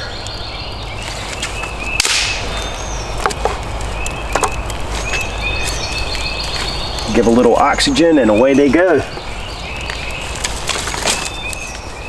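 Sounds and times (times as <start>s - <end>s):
dry sticks snapping: 0.0s - 12.0s
wood clicking and knocking: 3.1s - 7.1s, 9.1s - 11.9s.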